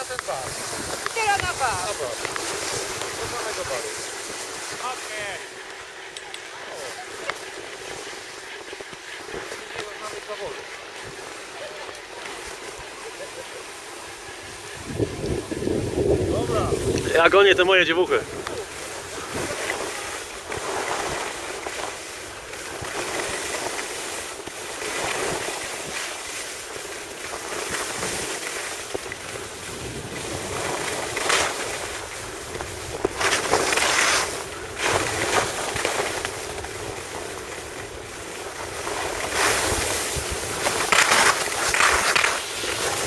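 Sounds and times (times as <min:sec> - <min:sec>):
skis scraping over snow: 0:00.0 - 0:43.0
wind on microphone: 0:14.2 - 0:21.4, 0:29.0 - 0:40.9.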